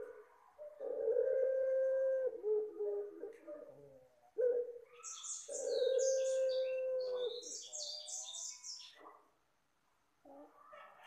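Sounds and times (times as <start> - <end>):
dove cooing: 0.0 - 8.4
songbird chirping: 0.0 - 11.0.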